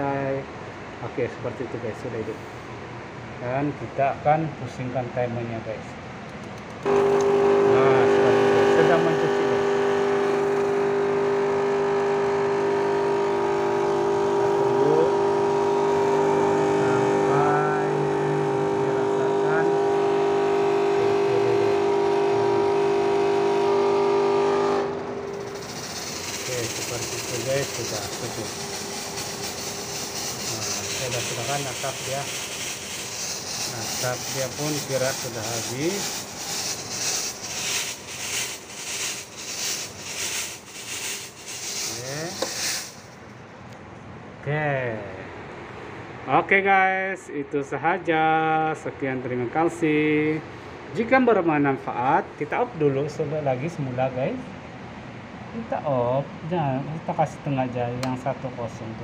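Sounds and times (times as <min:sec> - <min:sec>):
fogging machine buzzing hum: 0:06.6 - 0:43.7.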